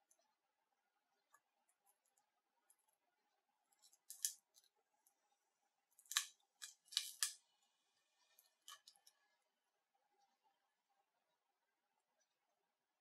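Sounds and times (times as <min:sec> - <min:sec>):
plastic and glass cracking snaps: 0:04.0 - 0:04.4, 0:06.0 - 0:07.4.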